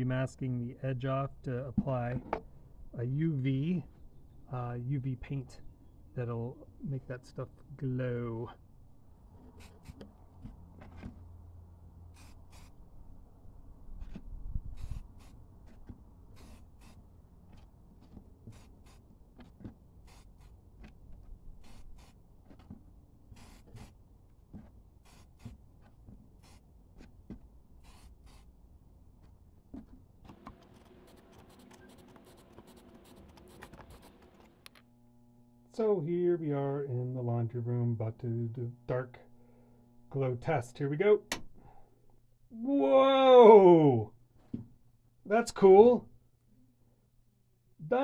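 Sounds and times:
aerosol spray bursts: 0:12.1 - 0:12.8, 0:14.8 - 0:15.4, 0:16.3 - 0:17.0, 0:20.0 - 0:20.5, 0:21.6 - 0:22.2, 0:23.4 - 0:23.9, 0:25.0 - 0:25.5, 0:26.4 - 0:26.6, 0:27.8 - 0:28.5.

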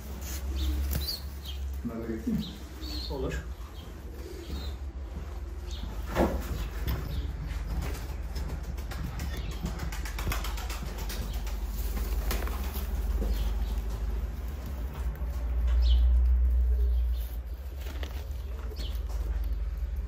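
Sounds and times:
pigeons flapping wings: 0:07.6 - 0:15.5.

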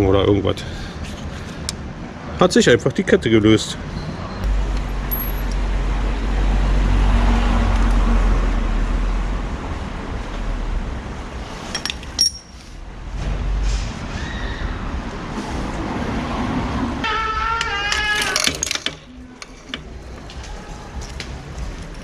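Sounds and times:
vehicle engine rumbling: 0:03.3 - 0:22.0
bicycle chain metallic clinks: 0:05.1 - 0:05.5, 0:11.7 - 0:12.8.

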